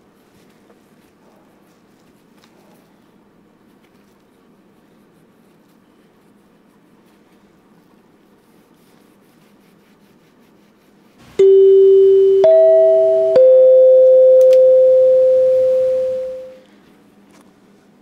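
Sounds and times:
three-note chime: 0:11.4 - 0:16.6.

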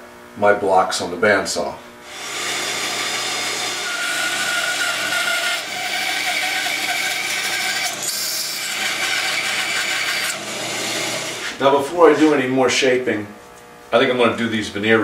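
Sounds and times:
bandsaw cutting wood: 0:02.1 - 0:12.2.

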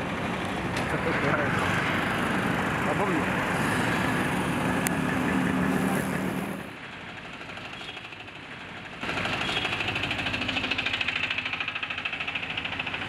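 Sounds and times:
motorbike passing: 0:00.0 - 0:06.8
small engine pulsing: 0:00.0 - 0:13.0.

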